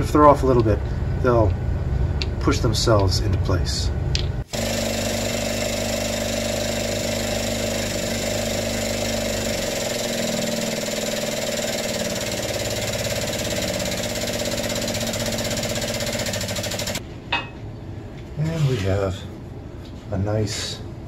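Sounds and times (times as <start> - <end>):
hydraulic pump pulsing hum: 4.1 - 17.0.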